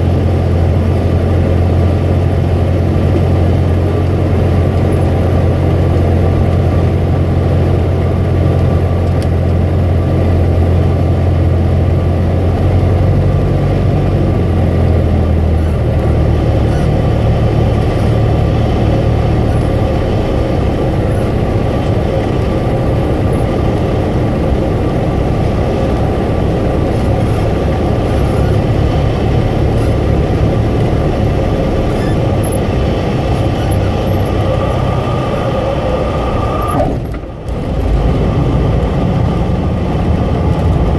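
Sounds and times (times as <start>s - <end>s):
propeller aircraft engine droning: 0.0s - 40.9s
airflow noise: 15.5s - 39.8s.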